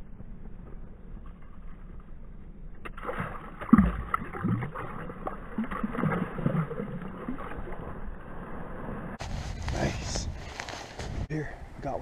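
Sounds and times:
water splashing and sloshing: 2.7s - 9.6s.

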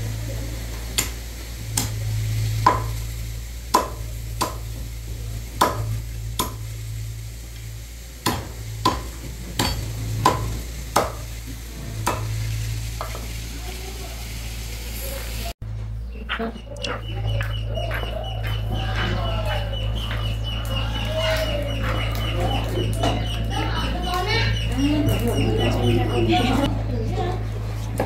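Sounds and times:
steady low hum: 0.0s - 28.0s
cleaver chopping on wooden block: 1.0s - 1.2s, 1.8s - 2.0s, 2.6s - 3.0s, 3.7s - 4.7s, 5.6s - 6.6s, 8.2s - 11.2s, 12.0s - 12.3s.

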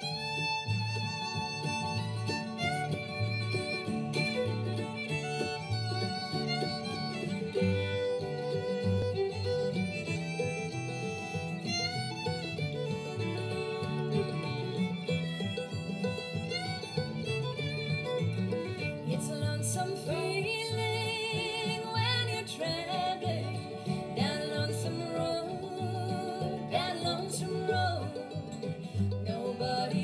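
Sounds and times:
bluegrass band playing: 0.0s - 30.0s
woman singing with vibrato: 19.0s - 28.5s, 29.2s - 30.0s.

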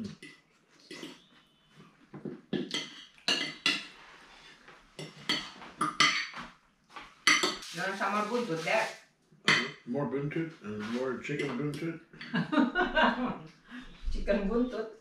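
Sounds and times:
cutlery clinking on plates: 2.6s - 4.0s, 5.0s - 6.5s, 7.2s - 7.7s, 9.5s - 9.8s.

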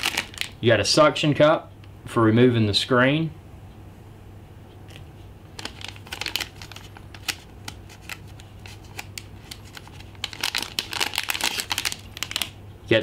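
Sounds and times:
plastic bag crinkling: 0.0s - 0.7s, 5.6s - 12.6s.

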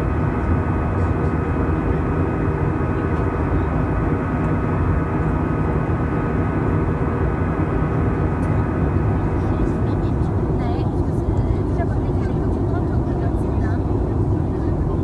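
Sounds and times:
jet engine and airflow noise: 0.0s - 15.0s.

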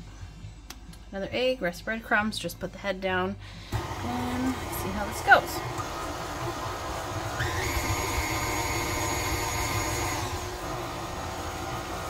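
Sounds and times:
stand mixer motor humming with whine: 3.7s - 12.0s.

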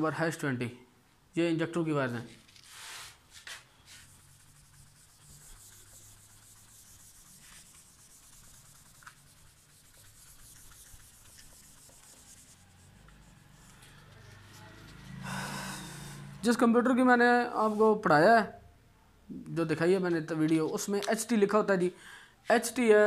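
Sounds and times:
eraser rubbing on whiteboard: 2.6s - 15.2s.

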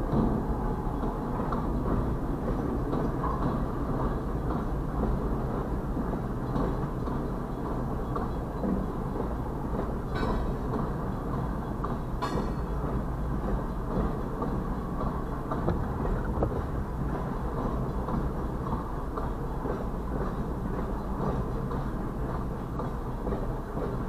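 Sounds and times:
freight train wheels rumbling on rail: 0.0s - 24.0s
train knocks and clanks: 0.0s - 24.0s.

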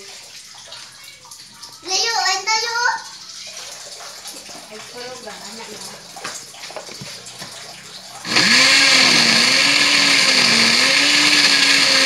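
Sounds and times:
blender running: 8.2s - 12.0s.

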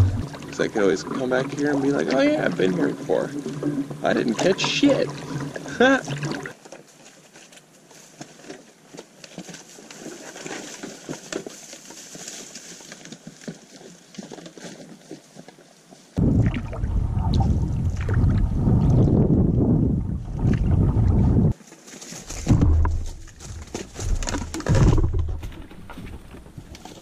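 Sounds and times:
wind rumble on microphone: 16.2s - 21.6s
footsteps through wet grass: 21.5s - 27.0s.

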